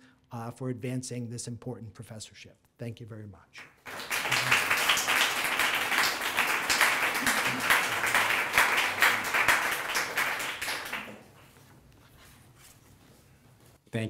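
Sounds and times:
audience applauding: 3.8 - 11.4.

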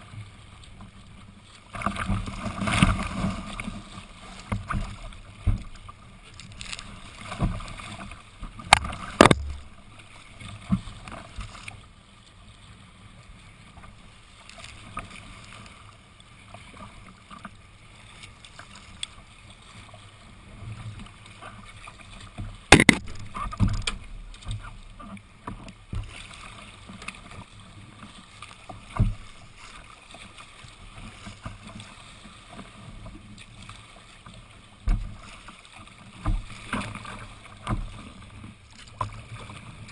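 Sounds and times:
water splashing against kayak: 0.0 - 39.9
sharp knocks: 8.7 - 9.8, 22.7 - 24.0.

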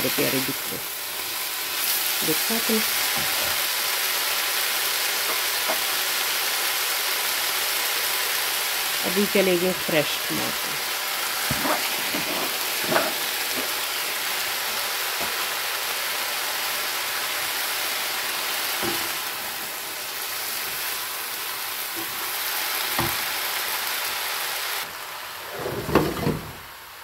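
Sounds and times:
vegetables sizzling in a frying pan: 0.0 - 27.0.

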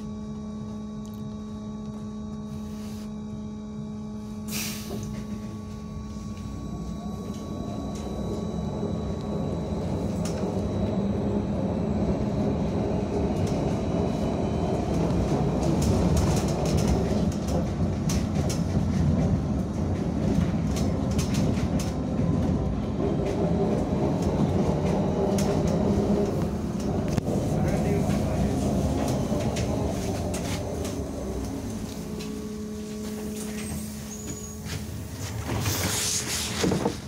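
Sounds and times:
trolleybus rolling rumble: 3.8 - 37.0
bus body rattling: 14.8 - 37.0.

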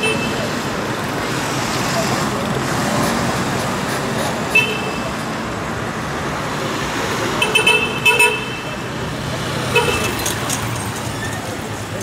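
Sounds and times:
city traffic: 0.0 - 12.0
car horn toot: 7.4 - 8.8.

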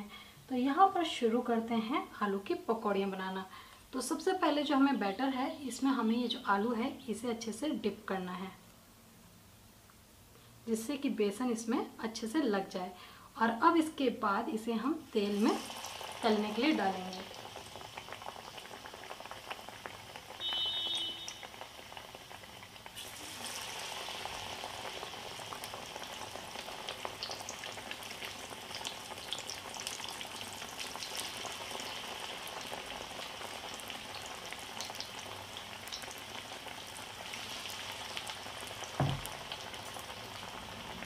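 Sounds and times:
food deep-frying in oil: 13.8 - 41.0
short knock: 39.0 - 39.4.

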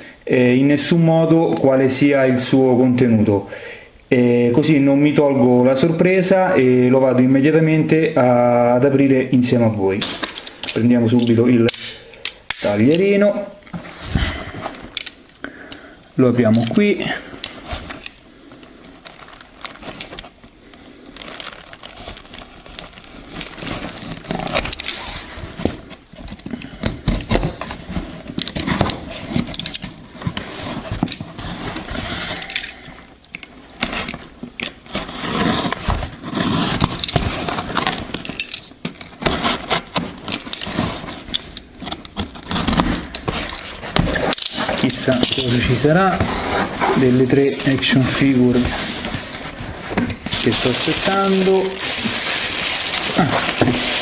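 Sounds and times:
cardboard flaps scraping and rustling: 39.2 - 54.0.

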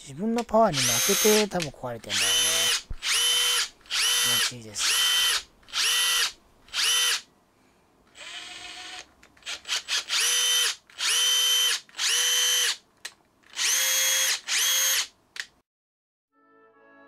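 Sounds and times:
impact driver motor whine: 0.8 - 1.5, 2.1 - 7.2, 9.7 - 12.8, 13.5 - 15.1.

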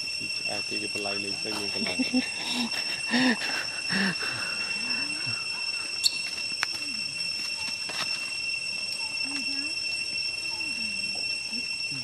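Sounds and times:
high-pitched two-tone whine: 0.0 - 12.0
low voices murmuring: 0.2 - 6.0.

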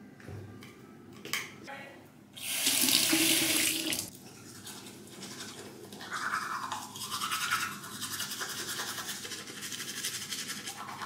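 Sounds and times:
teeth brushing scrubbing: 4.5 - 11.0.

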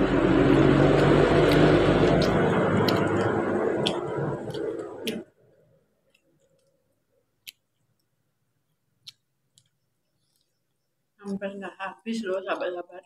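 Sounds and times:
loud rushing noise: 0.0 - 5.2
mouth clicks while chewing: 1.0 - 5.3, 7.4 - 8.2, 9.0 - 10.6.

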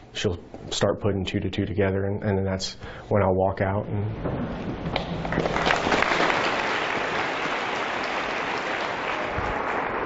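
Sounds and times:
audience applauding: 4.9 - 10.0.

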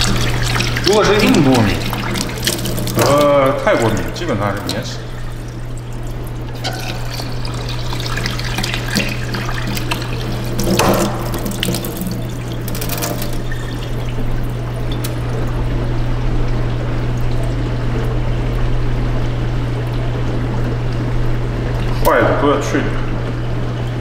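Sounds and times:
water splashing in metal sink: 0.0 - 18.5
steady low hum: 0.0 - 24.0.

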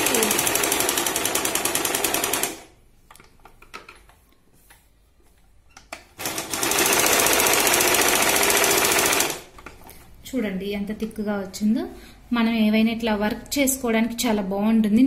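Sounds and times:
sewing machine stitching: 0.0 - 2.7, 6.2 - 9.6
sewing machine clicks: 5.8 - 9.7.

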